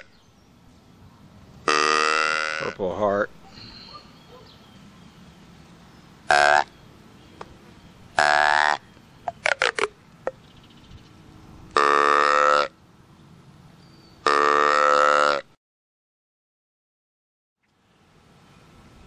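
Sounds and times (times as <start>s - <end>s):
reedy deer call: 1.7s - 2.8s, 3.4s - 4.5s, 6.3s - 6.8s, 8.1s - 8.9s, 11.7s - 12.8s, 14.2s - 15.4s.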